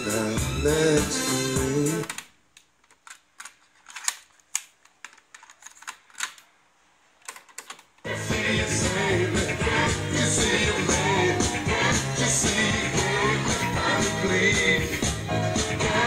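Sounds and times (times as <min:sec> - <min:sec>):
music from cassette: 0:00.0 - 0:02.2, 0:08.1 - 0:16.0
plastic cassette handled: 0:02.0 - 0:06.5, 0:07.2 - 0:08.1.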